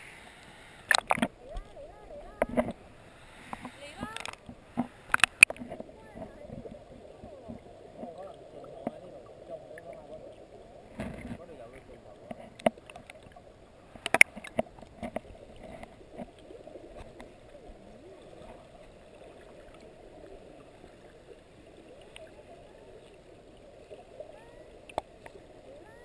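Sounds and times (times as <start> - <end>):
muffled rush of stream water: 0.0 - 26.0
sharp clicks and knocks: 0.9 - 1.6, 3.5 - 6.6, 14.0 - 16.3.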